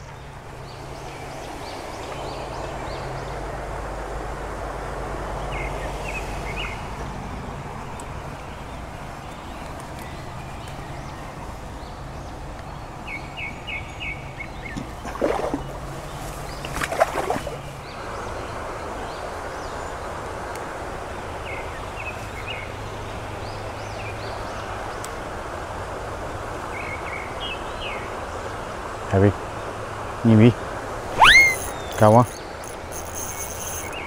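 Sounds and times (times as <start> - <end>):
river water rushing: 14.9 - 17.8, 28.0 - 34.0
brief bursts of noise: 31.1 - 33.9
small bird chirping: 31.1 - 34.0.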